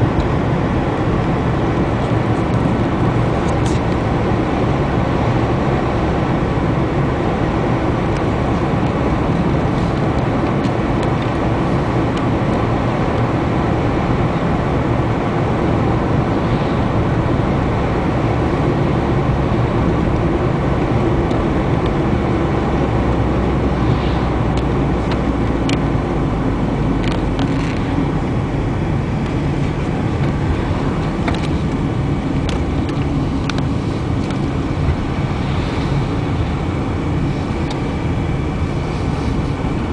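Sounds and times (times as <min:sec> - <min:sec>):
car road and engine noise: 0:00.0 - 0:39.9.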